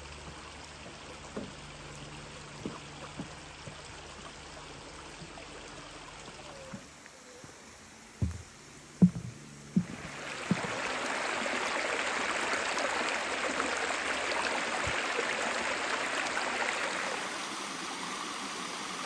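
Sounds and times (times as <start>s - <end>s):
heavy footsteps on wooden planks: 8.2s - 10.8s
creek rushing over bedrock: 9.8s - 19.0s.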